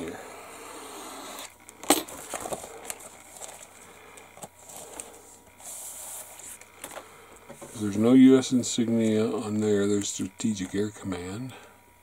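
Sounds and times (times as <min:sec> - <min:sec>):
plastic bag crinkling: 0:01.7 - 0:05.2.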